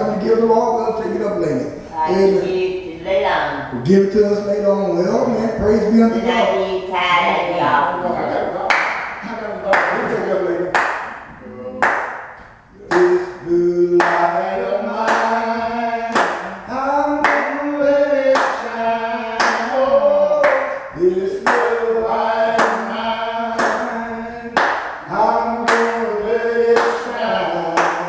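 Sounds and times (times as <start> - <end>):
gospel singing: 0.0 - 28.0
hand claps: 8.7 - 13.2, 14.0 - 14.2, 15.0 - 15.4, 16.1 - 16.6, 17.2 - 17.6, 18.3 - 18.6, 19.4 - 20.8, 21.4 - 21.8, 22.5 - 22.8, 23.6 - 23.9, 24.6 - 26.0, 26.7 - 27.1, 27.7 - 28.0.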